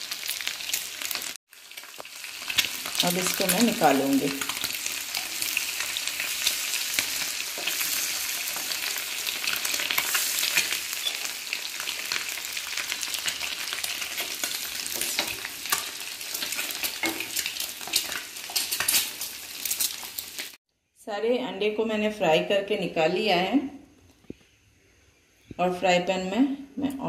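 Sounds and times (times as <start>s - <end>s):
eggs sizzling in hot oil: 0.0s - 20.6s
spatula scraping in pan: 4.4s - 20.5s.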